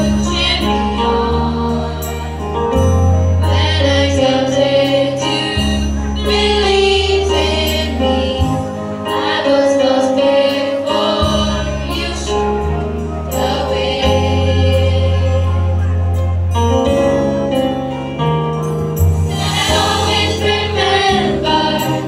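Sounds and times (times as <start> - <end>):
voices singing: 3.4 - 15.8, 19.3 - 22.0
held bass notes: 11.2 - 22.0.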